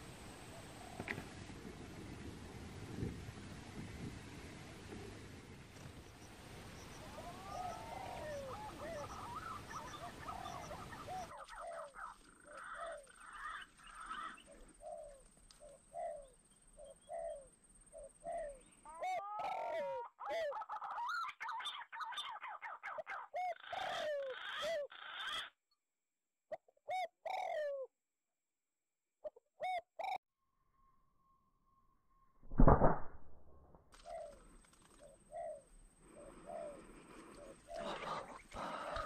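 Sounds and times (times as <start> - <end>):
pigeons whistling calls: 7.0 - 12.0.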